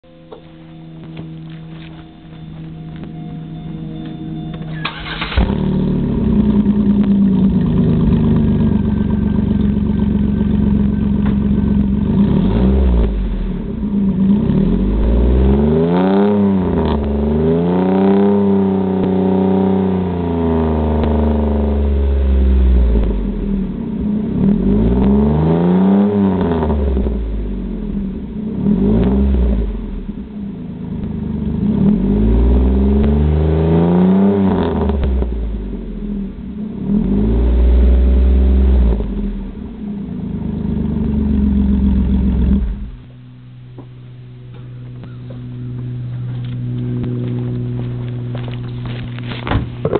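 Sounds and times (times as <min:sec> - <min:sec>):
car engine idling: 0:00.0 - 0:17.5, 0:26.3 - 0:33.4, 0:34.8 - 0:49.9
car engine revving: 0:00.0 - 0:49.9
car engine starting: 0:00.0 - 0:49.9.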